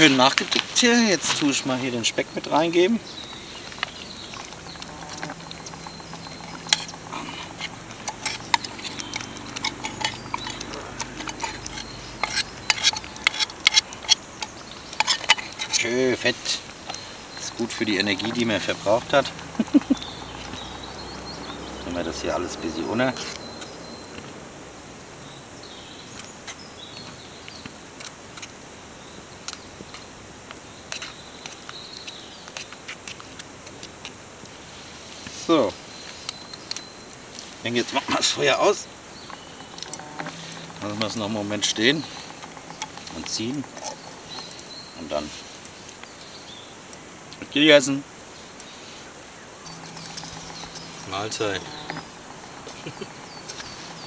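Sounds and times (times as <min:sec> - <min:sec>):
metal spoon scraping metal pot: 0:04.4 - 0:16.6.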